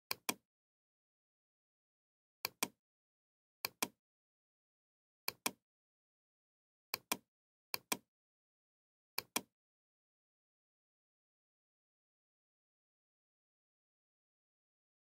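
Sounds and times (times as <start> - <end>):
computer mouse clicking: 0.1 - 0.4, 2.4 - 2.8, 3.6 - 4.0, 5.3 - 5.6, 7.0 - 7.2, 7.8 - 8.0, 9.2 - 9.5.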